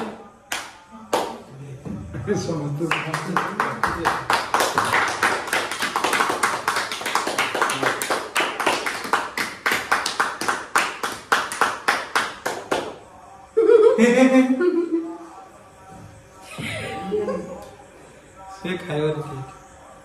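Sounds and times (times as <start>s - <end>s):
people clapping in rhythm: 0.0s - 1.5s, 2.5s - 13.1s.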